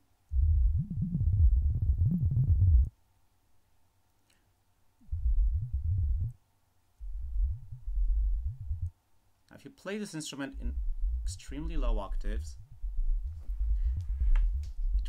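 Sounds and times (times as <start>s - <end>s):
deep bubbling synthesizer: 0.3s - 2.9s, 5.1s - 6.4s, 7.0s - 8.9s, 10.6s - 15.0s.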